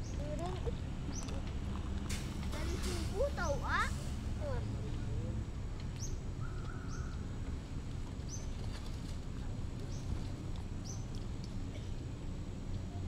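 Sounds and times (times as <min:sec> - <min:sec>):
low background rumble: 0:00.0 - 0:13.0
bird calling: 0:06.0 - 0:07.3.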